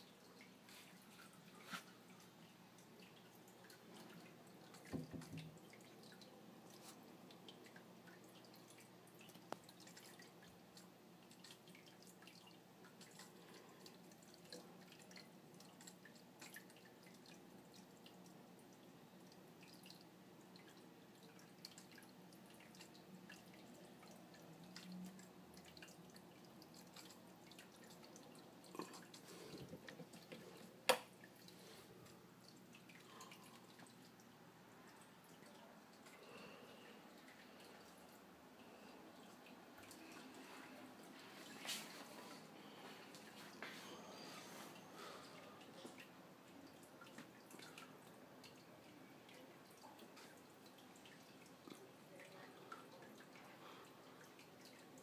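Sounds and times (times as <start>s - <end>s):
faint water dripping: 0.0s - 55.0s.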